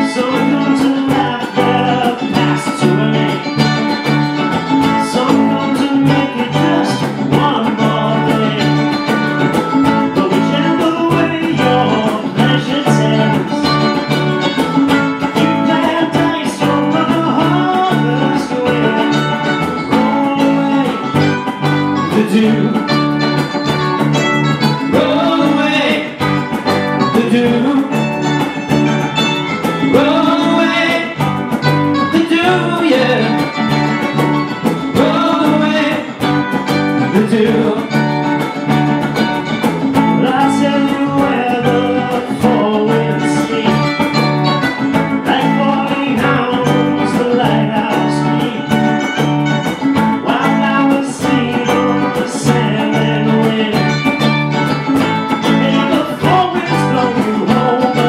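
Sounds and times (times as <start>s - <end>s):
cajon beat: 0.0s - 58.0s
electric guitars through amplifiers: 0.0s - 58.0s
person singing: 0.0s - 58.0s.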